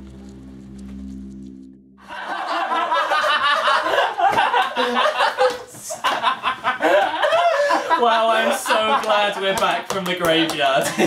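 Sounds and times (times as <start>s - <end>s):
men laughing loudly: 2.0s - 9.9s, 10.7s - 11.0s.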